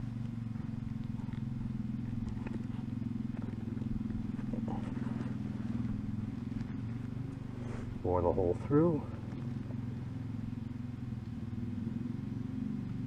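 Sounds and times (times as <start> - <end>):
low engine drone: 0.0 - 13.0
knife ticking and scraping leather: 0.1 - 8.0.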